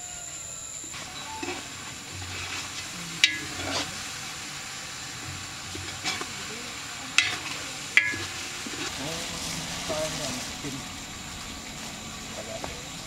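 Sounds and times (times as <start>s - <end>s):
gas burner hissing: 0.0s - 13.0s
utensil clinking on metal pot: 3.2s - 3.9s, 7.2s - 8.8s.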